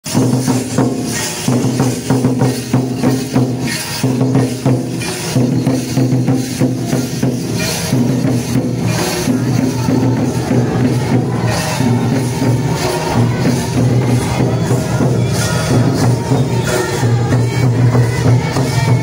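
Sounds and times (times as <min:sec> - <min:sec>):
barrel drums played by hand: 0:00.0 - 0:19.0
kettle drums beaten with sticks: 0:00.0 - 0:19.0.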